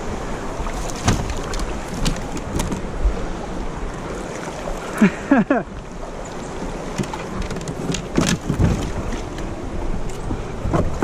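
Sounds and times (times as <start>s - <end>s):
river rapids rushing: 0.0s - 7.4s.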